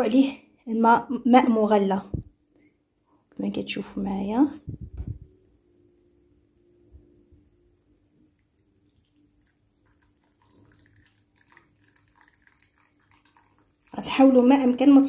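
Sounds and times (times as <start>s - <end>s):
water trickling into glass bowl: 8.3s - 15.0s.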